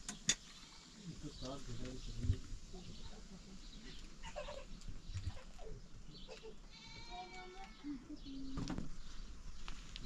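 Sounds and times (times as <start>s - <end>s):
faint clicks and chirps: 4.7s - 5.6s
goat bleating: 6.6s - 8.0s.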